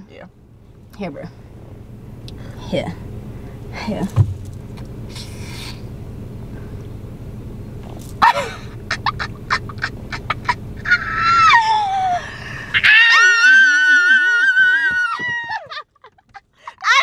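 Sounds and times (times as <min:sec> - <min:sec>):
steady low hum: 0:00.0 - 0:17.0
woman squealing excitedly: 0:10.8 - 0:15.8, 0:16.8 - 0:17.0.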